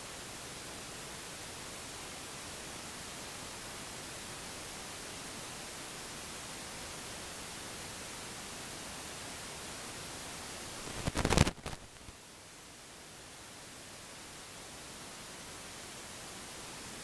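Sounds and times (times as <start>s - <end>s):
microphone hiss: 0.0s - 17.0s
crackling clicks: 10.8s - 12.1s.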